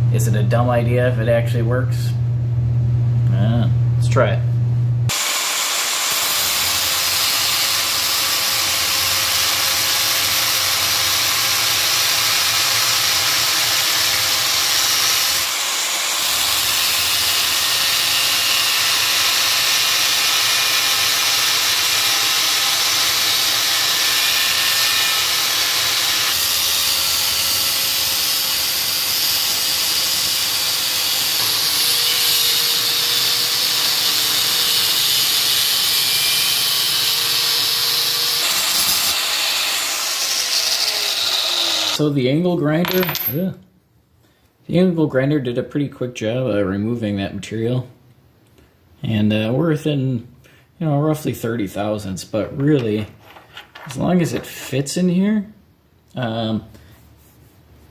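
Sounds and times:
angle grinder grinding metal: 0:05.1 - 0:42.0.

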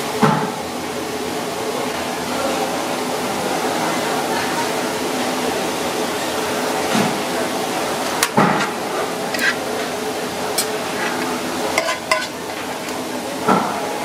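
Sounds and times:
kitchen background noise: 0:00.0 - 0:14.0
metal spoon clinking on plate: 0:11.8 - 0:12.4.

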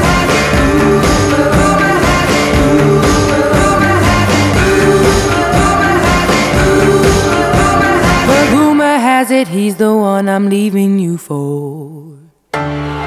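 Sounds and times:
band playing song: 0:00.0 - 0:08.6.

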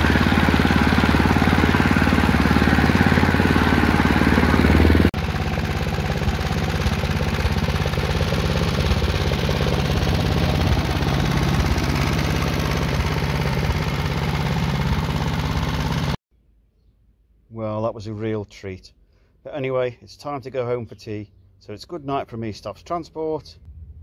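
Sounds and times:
lawn mower engine running: 0:00.0 - 0:16.2.

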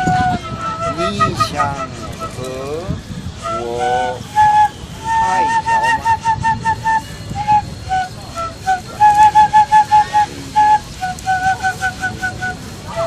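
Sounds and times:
bamboo flute melody: 0:00.0 - 0:13.0.

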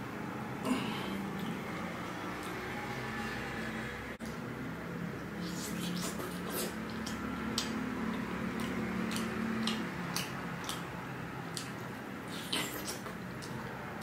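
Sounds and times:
chewing with wet mouth smacks: 0:05.2 - 0:14.0.

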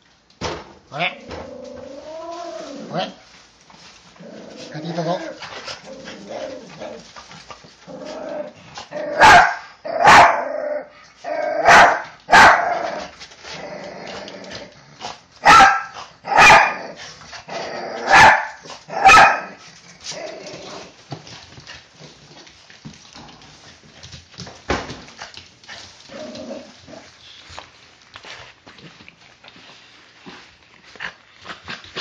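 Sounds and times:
small dogs barking: 0:09.0 - 0:13.0, 0:15.4 - 0:17.0, 0:18.0 - 0:19.6.

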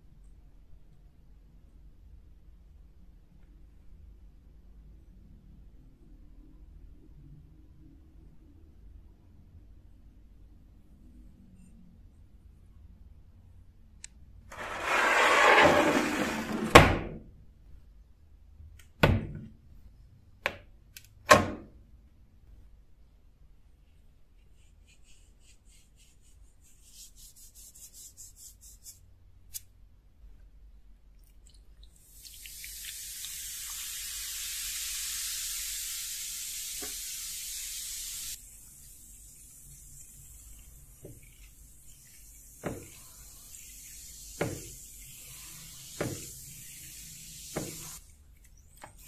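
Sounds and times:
baking soda fizzing: 0:14.5 - 0:16.3, 0:31.3 - 0:49.0
metal scraping and sliding: 0:14.5 - 0:16.8.

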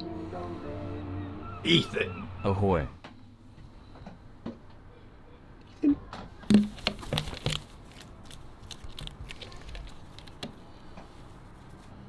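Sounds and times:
gull beak clacking and tapping: 0:06.5 - 0:07.6.

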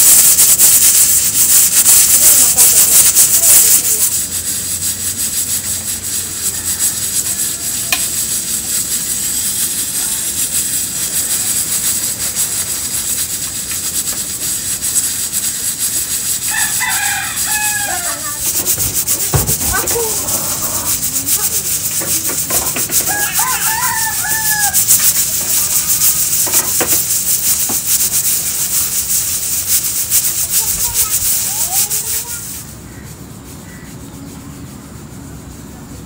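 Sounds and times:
steady hiss: 0:00.0 - 0:36.0
rooster crowing: 0:16.4 - 0:26.0.

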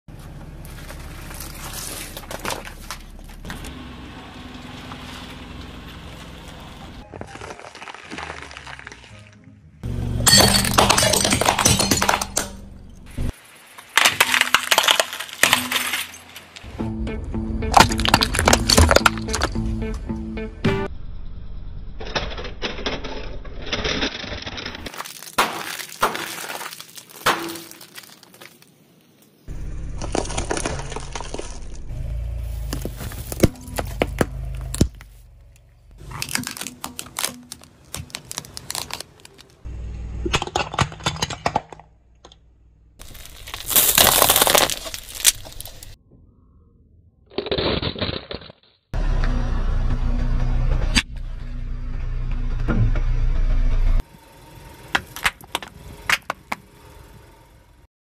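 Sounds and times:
car engine running: 0:00.1 - 0:07.0, 0:09.8 - 0:13.3, 0:29.5 - 0:40.4, 0:49.0 - 0:57.9
packets crinkling and crunching: 0:07.0 - 0:09.4, 0:24.9 - 0:28.8, 0:36.0 - 0:39.6, 0:43.0 - 0:46.0
snack bags bursting: 0:07.3 - 0:09.3, 0:13.8 - 0:16.3, 0:24.9 - 0:28.7, 0:29.9 - 0:31.9, 0:36.0 - 0:39.6, 0:43.0 - 0:46.0
tyre crushing plastic tubs: 0:13.9 - 0:16.6, 0:17.8 - 0:19.6, 0:24.9 - 0:28.6, 0:30.0 - 0:31.9, 0:36.0 - 0:39.6, 0:40.3 - 0:41.9, 0:43.0 - 0:46.0.

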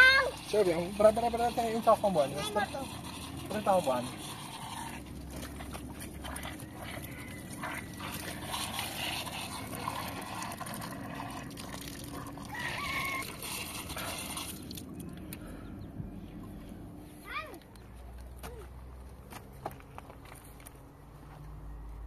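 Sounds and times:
water trickling from a pipe: 0:00.0 - 0:15.7.

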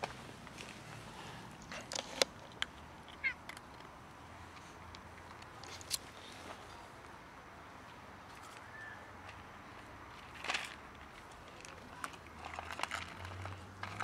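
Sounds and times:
puppy crunching dry kibble: 0:01.6 - 0:06.1, 0:10.1 - 0:14.0.

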